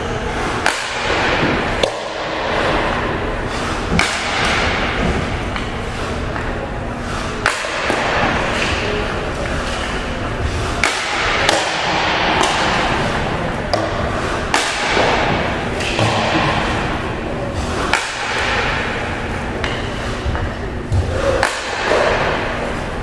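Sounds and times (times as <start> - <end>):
steady rink hum: 0.0 - 23.0
hockey puck shot cracks: 13.7 - 16.9.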